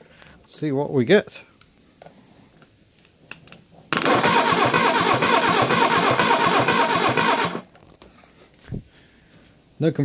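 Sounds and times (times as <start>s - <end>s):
engine cranking on starter motor: 4.0s - 7.7s.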